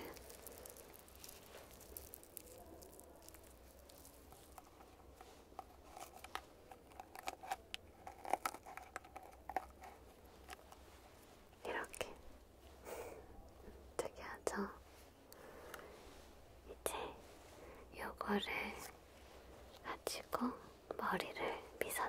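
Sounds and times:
sheet rustling and crinkling: 0.0 - 11.5.

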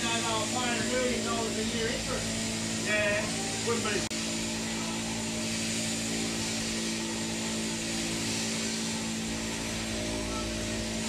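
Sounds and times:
electric shears humming: 0.0 - 11.0.

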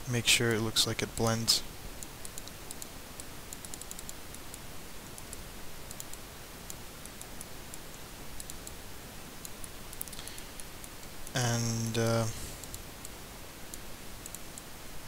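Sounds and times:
microphone hiss: 0.0 - 15.0
computer mouse clicks: 2.0 - 8.8, 9.4 - 11.4, 12.6 - 14.7.

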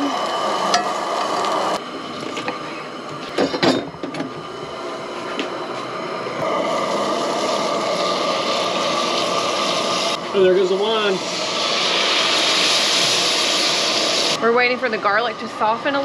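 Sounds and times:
garlic sizzling in oil: 4.4 - 16.0.

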